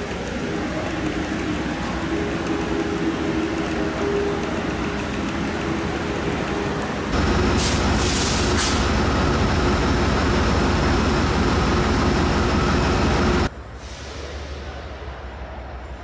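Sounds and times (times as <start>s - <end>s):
locomotive engine rumble: 0.0s - 15.2s
short air hisses: 7.6s - 8.9s.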